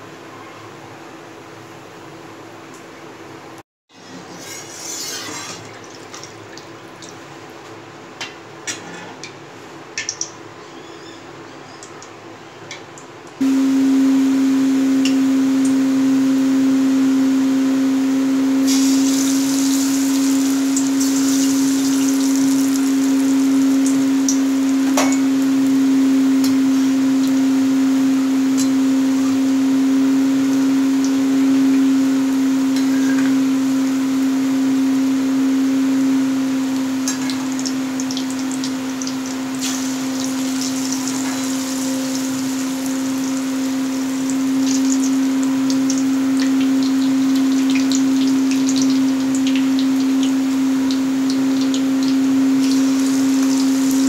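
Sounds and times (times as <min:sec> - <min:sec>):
loud mechanical hum: 0:07.3 - 0:54.0
batter frying in oil: 0:18.4 - 0:54.0.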